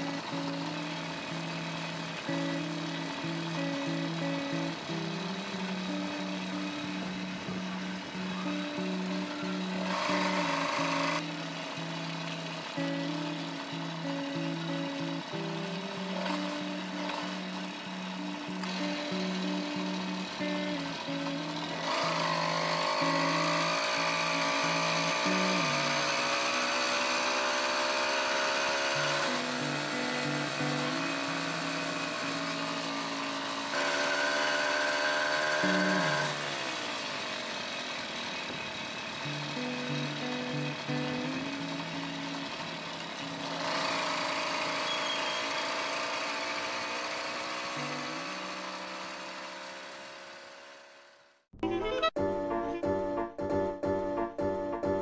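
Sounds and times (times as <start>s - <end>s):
background music with bass line: 0.0s - 26.4s, 51.6s - 55.0s
two-stroke bicycle engine buzzing: 0.0s - 51.6s.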